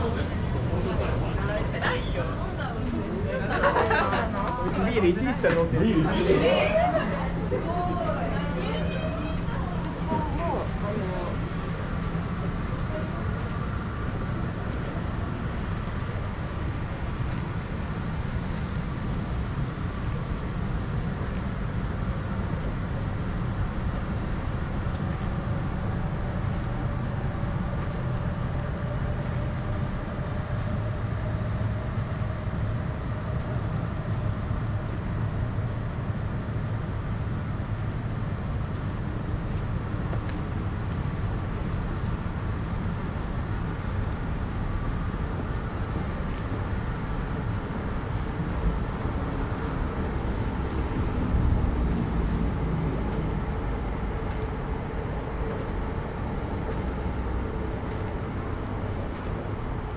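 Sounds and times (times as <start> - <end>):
low vehicle rumble: 0.0 - 59.9.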